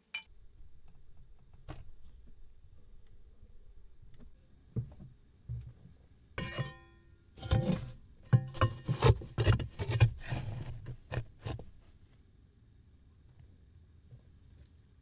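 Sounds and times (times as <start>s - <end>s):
metal shovel clanking: 6.4s - 10.0s
shovel scraping brick floor: 7.4s - 8.0s.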